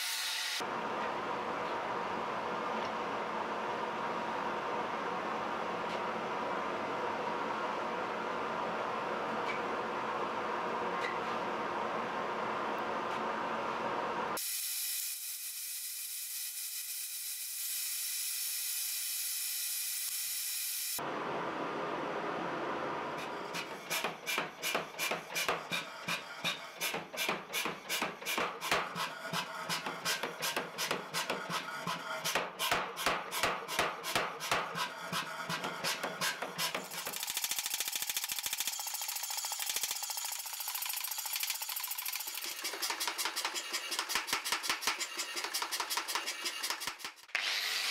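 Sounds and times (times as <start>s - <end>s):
power hammer striking hot steel: 23.5s - 40.0s.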